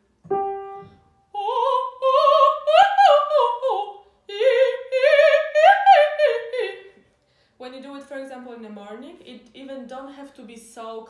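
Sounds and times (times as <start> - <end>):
woman singing operatic warm-up: 1.2 - 7.0
singer breathing: 7.2 - 7.6.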